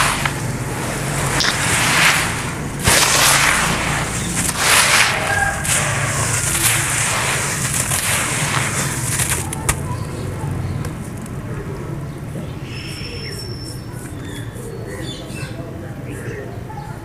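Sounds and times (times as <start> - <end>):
hand crumbling gritty sand mix: 0.0 - 11.3.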